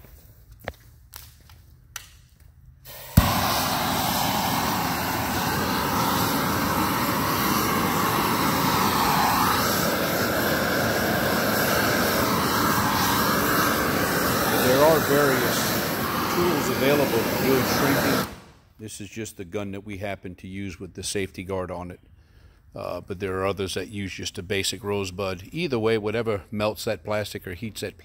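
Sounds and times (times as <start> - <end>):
gas heat gun lighting pop: 1.1 - 18.6
flame roaring: 2.8 - 18.6.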